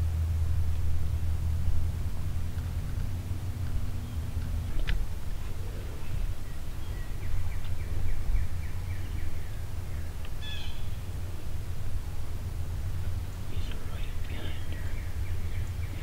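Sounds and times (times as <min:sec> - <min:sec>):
songbird singing: 0:00.0 - 0:16.0
steady low rumble: 0:00.0 - 0:16.0
high bird chirp: 0:05.4 - 0:11.2, 0:13.5 - 0:16.0.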